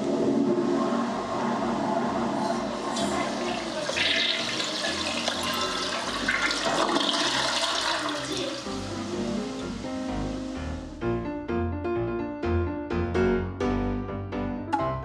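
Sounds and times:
toilet flushing: 0.0 - 10.8.

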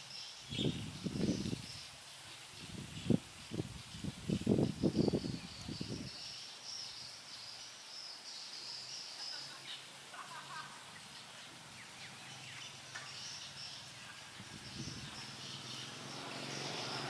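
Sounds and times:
faint bird chirps: 3.8 - 17.0.

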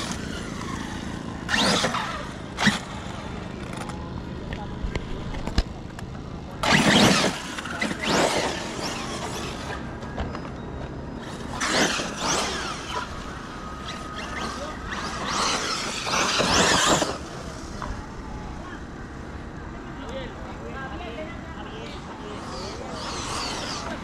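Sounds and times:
rc car motor whine: 0.0 - 5.7, 6.5 - 19.4, 21.9 - 24.0
tyres on dirt and grass: 0.0 - 24.0.

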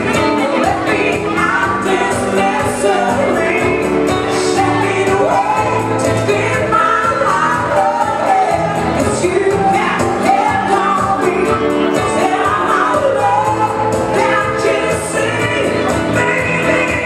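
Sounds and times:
electric guitar: 0.0 - 17.0
keyboard: 0.0 - 17.0
women singing into microphones: 0.0 - 17.0.

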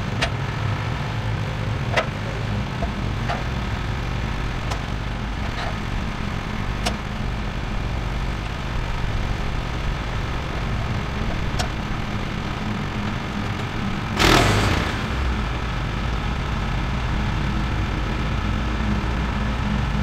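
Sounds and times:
small gasoline engine idling: 0.0 - 20.0.

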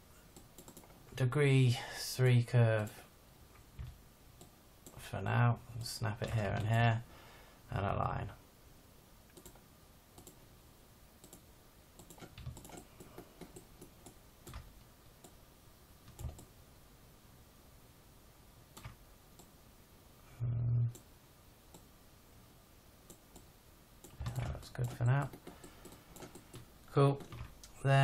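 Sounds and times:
mouse and keyboard clicks: 0.3 - 1.0, 9.3 - 9.6, 10.2 - 10.4, 12.0 - 15.4, 16.1 - 16.5, 23.1 - 27.8.

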